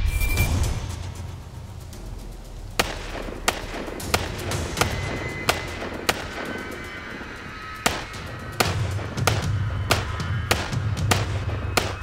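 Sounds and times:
background music: 0:00.0 - 0:12.0
pistol shots: 0:02.8 - 0:06.5, 0:07.8 - 0:12.0.

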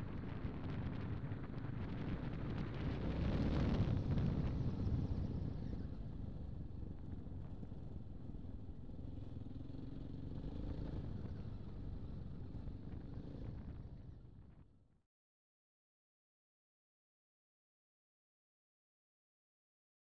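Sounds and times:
motorcycle engine cruising: 0:00.1 - 0:14.6.

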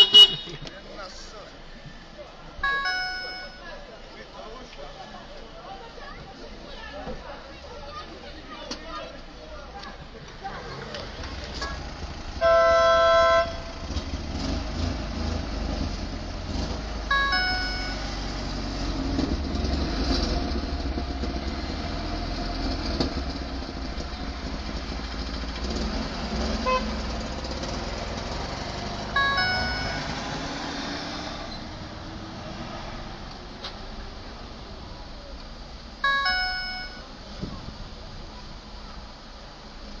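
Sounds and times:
car horns honking: 0:00.0 - 0:00.8, 0:02.6 - 0:03.8, 0:12.4 - 0:14.0, 0:17.1 - 0:18.4, 0:26.5 - 0:27.2, 0:29.0 - 0:31.6, 0:36.0 - 0:37.2
low engine rumble: 0:00.0 - 0:40.0.

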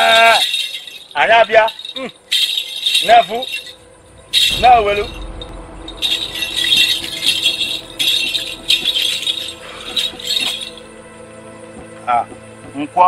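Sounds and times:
hand rattle shaken: 0:00.0 - 0:10.9
background music: 0:00.0 - 0:13.0.

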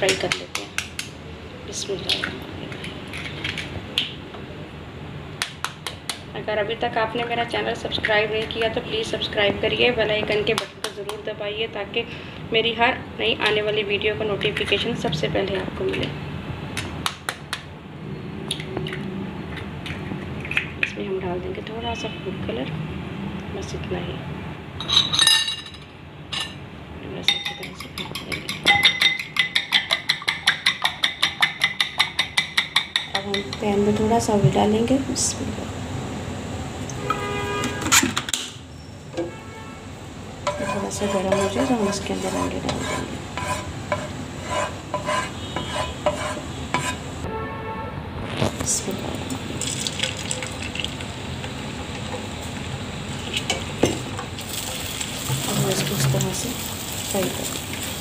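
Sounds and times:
eggs hissing in hot oil: 0:54.4 - 0:58.0.

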